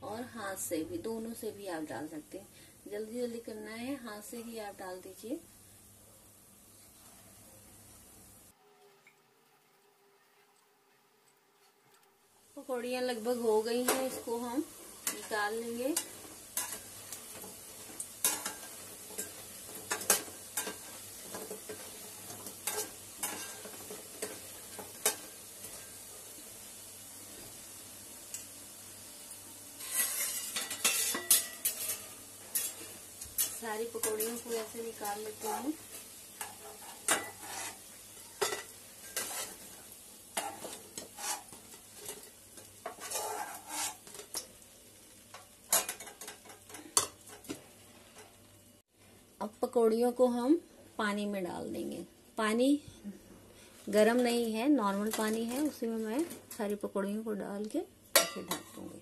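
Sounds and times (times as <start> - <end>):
fritters sizzling in hot oil: 12.3 - 59.0
spoon scraping and clinking pan: 29.8 - 34.5, 36.4 - 39.6, 40.4 - 44.4.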